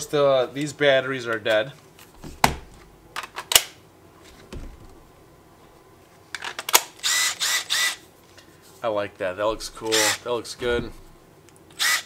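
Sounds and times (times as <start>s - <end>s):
impact driver burst: 6.8s - 8.0s, 11.8s - 12.0s.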